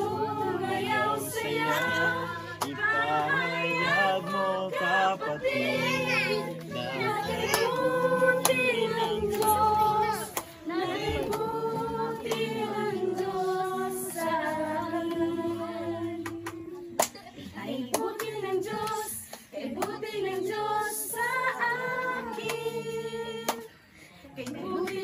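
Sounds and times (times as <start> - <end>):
women and girls singing: 0.0 - 25.0
hand claps: 1.8 - 3.4, 5.8 - 11.6, 12.2 - 13.4, 16.2 - 20.1, 22.3 - 22.8, 23.4 - 23.7, 24.4 - 25.0.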